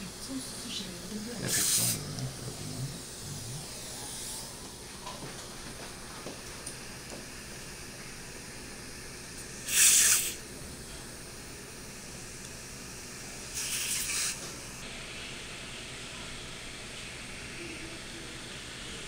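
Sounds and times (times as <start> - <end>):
surgical suction hissing and slurping: 1.4 - 4.7, 8.3 - 10.4, 13.4 - 14.6.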